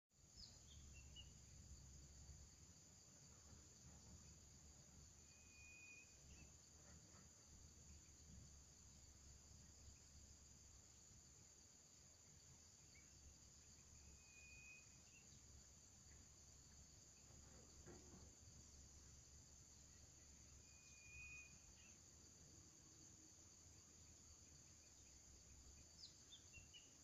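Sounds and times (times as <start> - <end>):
high-pitched insect chorus: 0.2 - 27.0.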